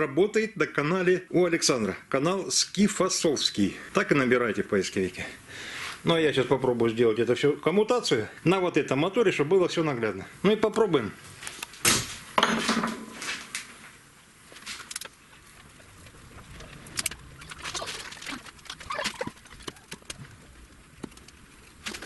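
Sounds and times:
wires rustling: 0:13.1 - 0:22.0
small clicks: 0:16.6 - 0:20.3.

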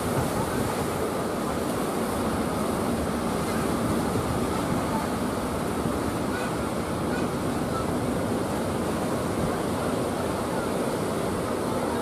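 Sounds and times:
large waves breaking on shore: 0:00.0 - 0:12.0.

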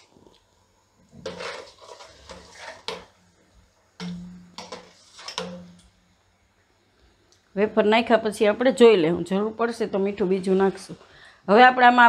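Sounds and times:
spoon stirring in metal pot: 0:01.1 - 0:03.3, 0:04.0 - 0:06.0.

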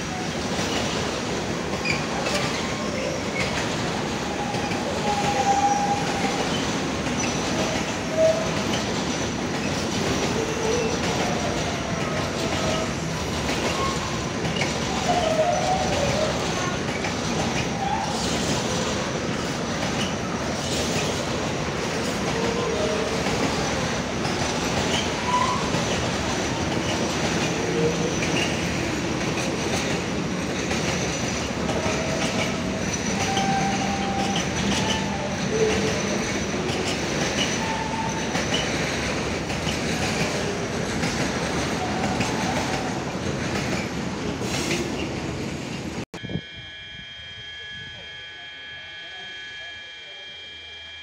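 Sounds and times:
train wheels clattering on rails: 0:00.0 - 0:46.0.

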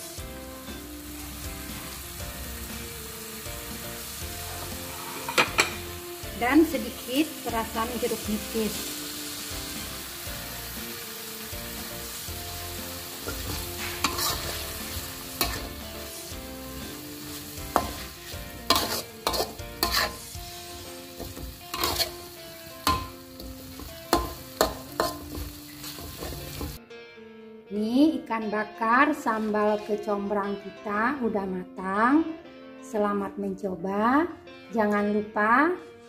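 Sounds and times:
sizzling in a wok: 0:00.0 - 0:26.8
metal spatula scraping a wok: 0:04.4 - 0:05.9, 0:13.0 - 0:26.8.

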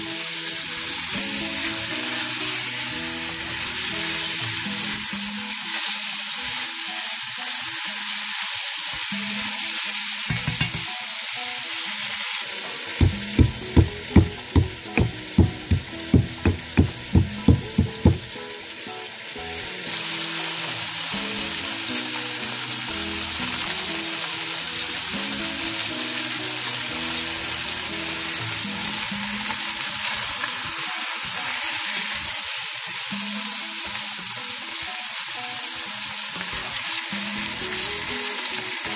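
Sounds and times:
meat sizzling in a pot: 0:00.0 - 0:38.9
pestle pounding in a mortar: 0:13.0 - 0:18.3
spatula stirring: 0:13.0 - 0:18.3.

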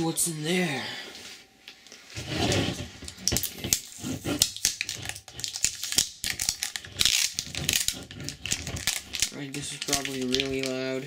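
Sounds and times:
plastic wrap crackling: 0:03.1 - 0:11.0.

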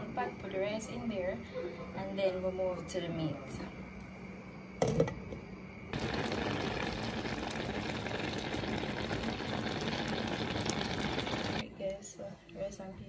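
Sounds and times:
pot of rice bubbling: 0:05.9 - 0:11.6.

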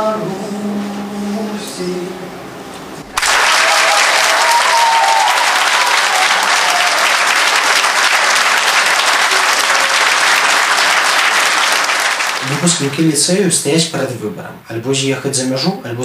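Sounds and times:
crowd applauding: 0:03.2 - 0:13.0.

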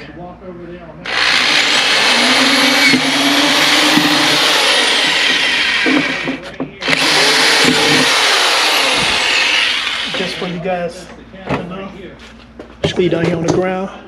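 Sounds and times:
electric drill boring plastic: 0:01.1 - 0:10.5.

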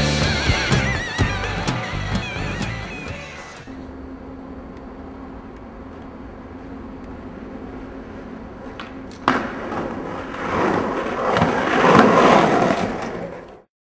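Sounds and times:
skateboard rolling: 0:07.3 - 0:13.7
skateboard landing clack: 0:08.8 - 0:13.6
skateboard grinding on ledge: 0:09.2 - 0:13.6.

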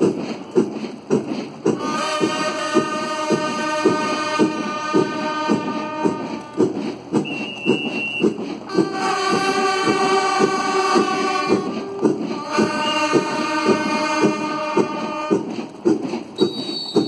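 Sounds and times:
steady drum beat: 0:00.0 - 0:17.0
military band playing a march: 0:01.7 - 0:17.0
high held trumpet note: 0:08.7 - 0:15.3.

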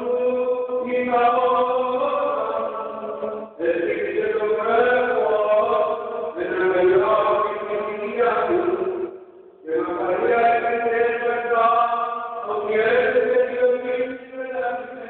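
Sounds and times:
man chanting with echo: 0:00.0 - 0:15.0.

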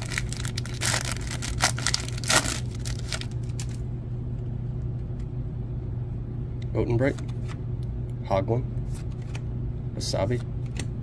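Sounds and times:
plastic wrapper tearing and crinkling: 0:00.0 - 0:03.8.

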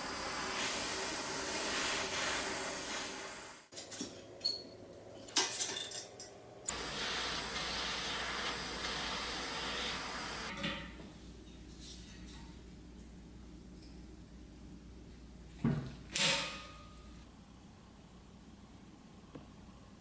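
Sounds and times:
handheld torch hissing: 0:00.0 - 0:03.7, 0:06.7 - 0:10.5.

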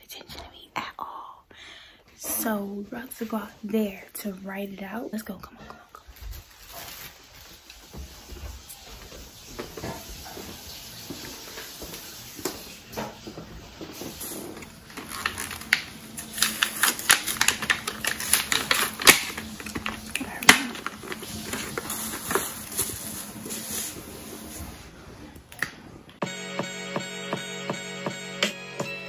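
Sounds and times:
plastic blister pack crinkling: 0:06.1 - 0:07.9, 0:14.0 - 0:24.6.

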